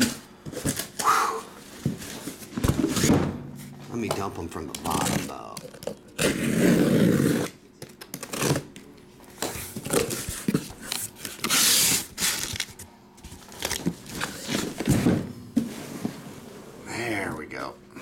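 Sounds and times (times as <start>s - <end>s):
cardboard and plastic wrap rustling: 1.6s - 6.5s, 9.4s - 16.4s
cardboard scrape: 6.2s - 7.5s.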